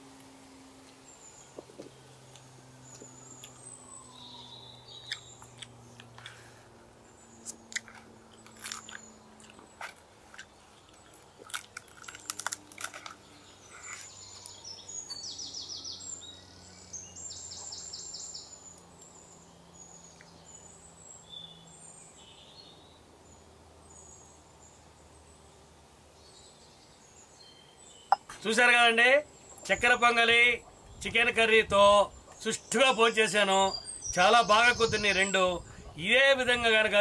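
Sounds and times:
small birds chirping: 0:00.0 - 0:37.0
light clicks and crackles: 0:07.4 - 0:13.2.

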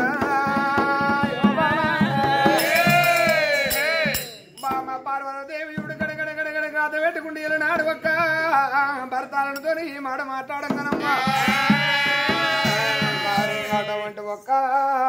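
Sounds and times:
chorus of voices singing: 0:00.0 - 0:04.4, 0:11.0 - 0:14.2
drum beats: 0:00.0 - 0:08.8, 0:10.5 - 0:14.2
man singing lead: 0:00.0 - 0:15.0.

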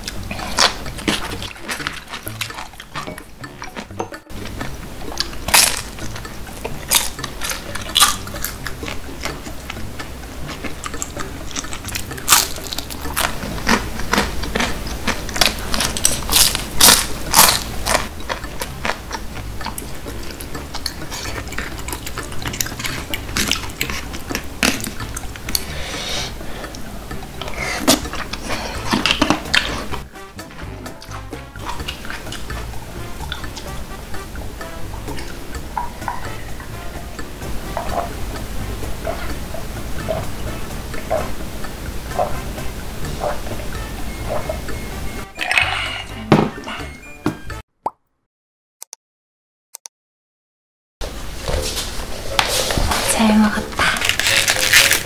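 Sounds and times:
crunchy chewing: 0:00.0 - 0:09.8, 0:10.4 - 0:33.7, 0:51.5 - 0:55.0
quiet background music: 0:00.0 - 0:47.6, 0:51.0 - 0:55.0.

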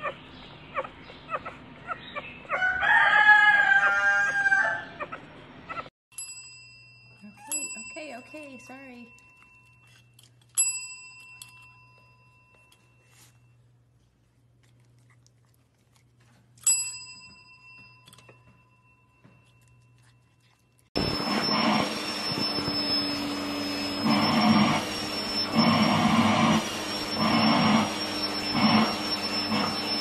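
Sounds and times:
service bell ringing: 0:06.1 - 0:13.5, 0:16.6 - 0:20.0
vacuum cleaner whining: 0:21.0 - 0:30.0.

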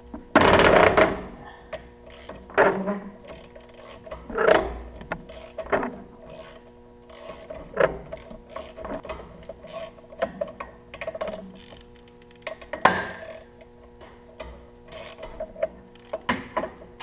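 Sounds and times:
faint steady hum: 0:00.0 - 0:17.0
hand ratchet clicking: 0:02.0 - 0:02.6, 0:03.2 - 0:04.2, 0:05.0 - 0:10.3, 0:11.0 - 0:13.7, 0:14.4 - 0:16.4.

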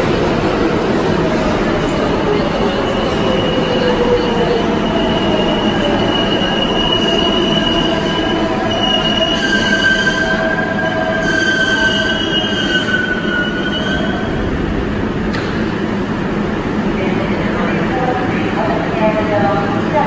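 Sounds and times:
train cars rumbling: 0:00.0 - 0:20.0
train wheels squealing: 0:02.2 - 0:14.3.

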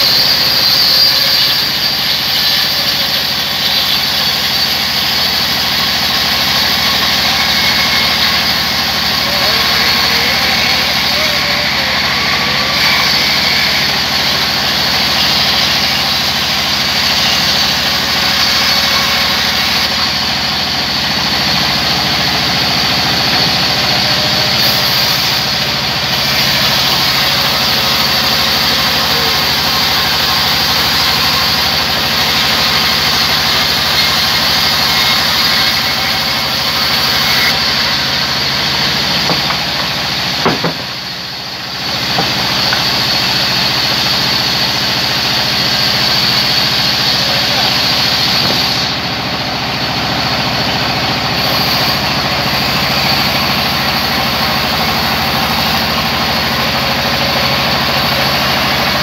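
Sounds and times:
band saw cutting log: 0:00.0 - 0:59.0
sharp knock: 0:39.2 - 0:39.7, 0:40.4 - 0:41.1, 0:42.1 - 0:42.8.

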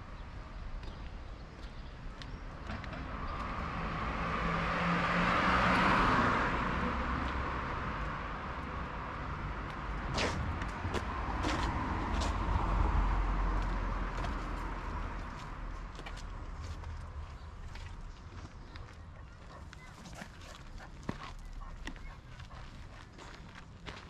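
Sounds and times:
car driving past: 0:02.7 - 0:08.5.

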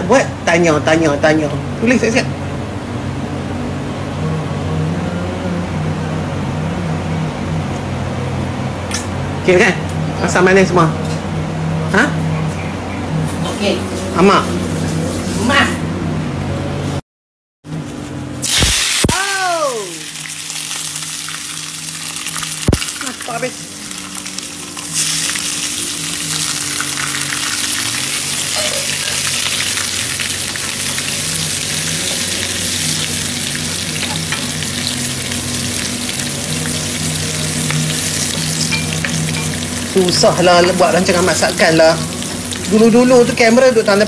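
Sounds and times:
food sizzling in hot oil: 0:18.4 - 0:44.0.

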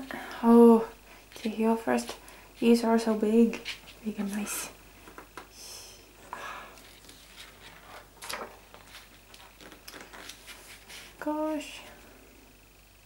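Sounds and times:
pages rustling: 0:06.8 - 0:11.2.

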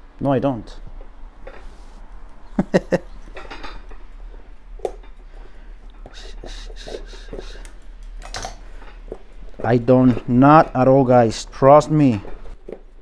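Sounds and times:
nippers snipping and scraping: 0:05.9 - 0:13.0.

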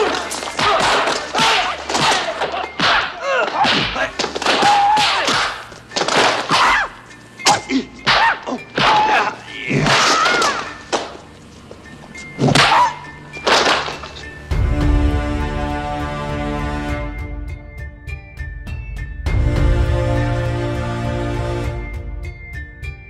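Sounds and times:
fighters shouting and grunting: 0:00.0 - 0:05.6, 0:06.4 - 0:10.7
punch and kick impacts: 0:00.0 - 0:06.7.

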